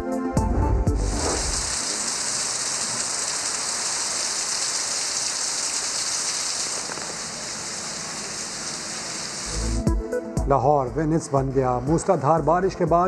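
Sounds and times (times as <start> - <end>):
heavy rain on water: 1.2 - 9.7.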